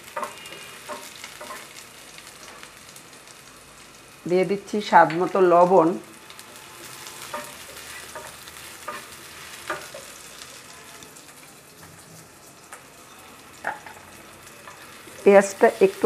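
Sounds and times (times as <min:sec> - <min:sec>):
spatula scraping a pan: 0:00.0 - 0:01.8, 0:06.6 - 0:10.5
onions sizzling in oil: 0:00.0 - 0:16.0.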